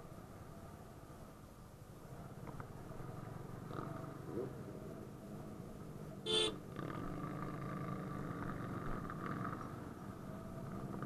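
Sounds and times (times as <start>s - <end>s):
vehicle horn toot: 6.3s - 6.6s.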